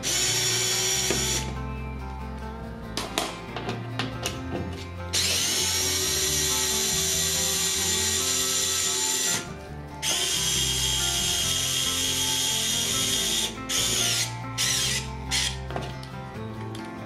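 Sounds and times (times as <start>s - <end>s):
electric screwdriver whirring: 0.0s - 1.5s, 5.2s - 15.6s.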